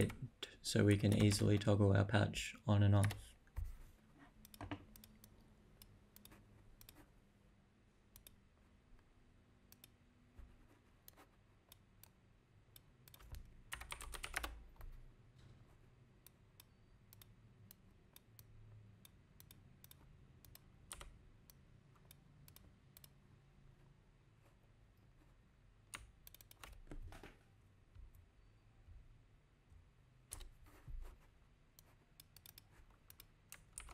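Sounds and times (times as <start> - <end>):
faint computer keyboard typing: 0.0 - 1.8, 2.9 - 3.8, 4.4 - 7.1, 8.1 - 8.4, 9.6 - 15.5, 16.2 - 23.2, 25.9 - 27.3, 30.3 - 33.9.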